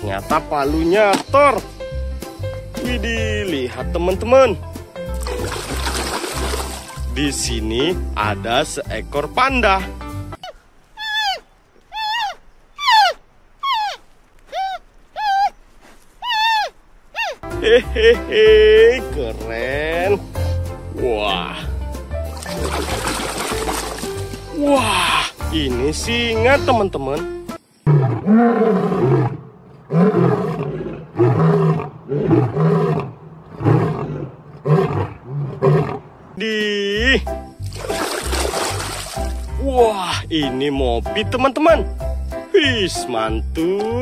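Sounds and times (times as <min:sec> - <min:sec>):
panda high-pitched calls: 0:10.4 - 0:15.6, 0:16.2 - 0:17.4
lion roaring: 0:27.9 - 0:36.2.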